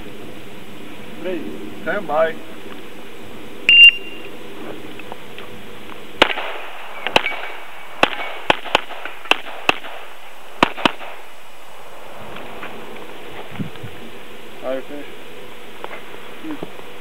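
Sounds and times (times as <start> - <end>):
handgun firing rapid shots: 6.2 - 11.2.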